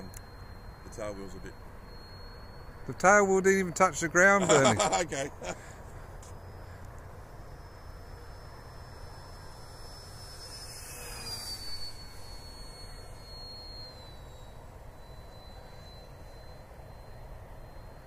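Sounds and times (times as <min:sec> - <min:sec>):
model plane motor whining: 0:05.5 - 0:18.0.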